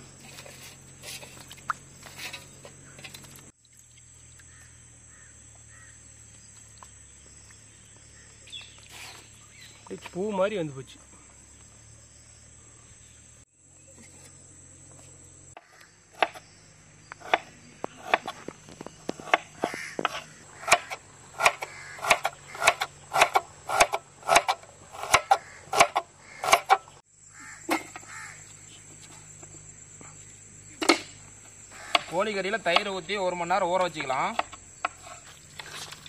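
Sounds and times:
knife chopping on cutting board: 17.2s - 18.4s, 19.1s - 26.8s.

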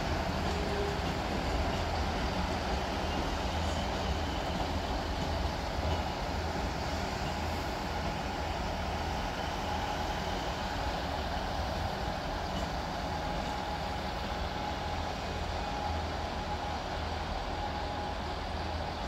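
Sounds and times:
diesel train engine drone: 0.0s - 19.0s
thin steady whine: 0.0s - 19.0s.

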